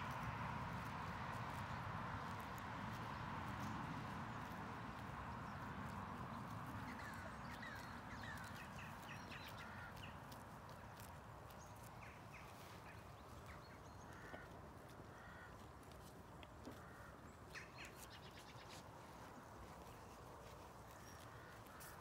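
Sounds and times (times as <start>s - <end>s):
birds chirping: 5.4s - 10.8s, 11.5s - 15.8s
crow-like calls: 14.1s - 15.6s, 16.7s - 17.8s.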